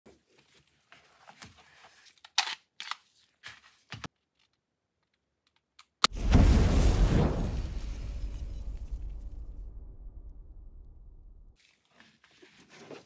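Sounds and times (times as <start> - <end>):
gunshot: 6.1 - 11.0
deep rumbling boom: 6.1 - 11.6.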